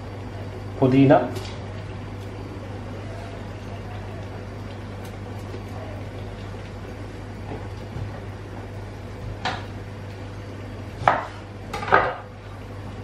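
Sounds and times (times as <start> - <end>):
low kitchen hum: 0.0 - 13.0.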